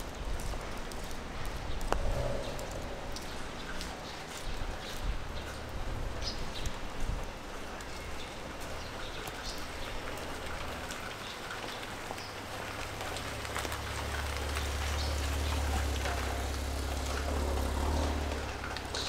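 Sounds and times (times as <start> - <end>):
steady rain falling: 0.0 - 19.0
vehicle passing: 1.8 - 4.7, 12.8 - 19.0.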